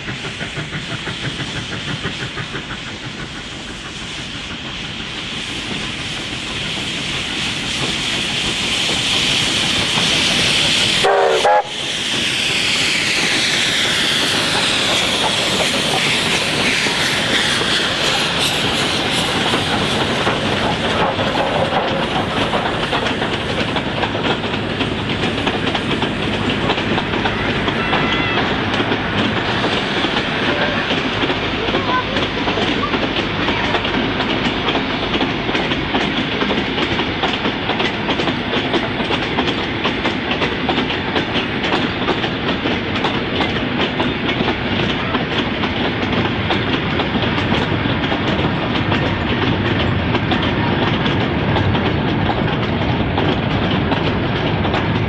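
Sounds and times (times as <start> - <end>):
hissing steam: 0.0 - 55.0
steam locomotive exhaust beating: 0.0 - 55.0
train wheels clattering over rail joints: 0.0 - 55.0.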